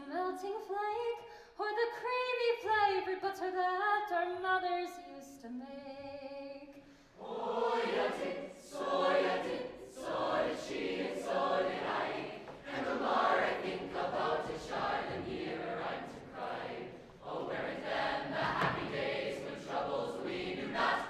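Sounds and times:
choir singing in harmony: 7.2s - 21.0s.

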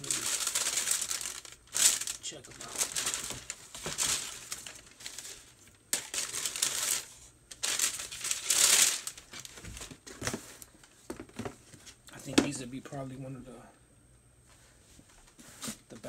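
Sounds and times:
tissue paper rustling: 0.0s - 10.7s.

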